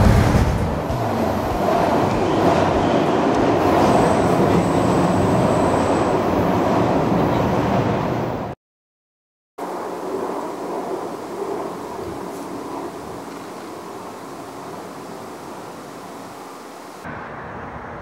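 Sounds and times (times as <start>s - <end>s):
train wheels rumbling on rail: 0.0s - 8.4s.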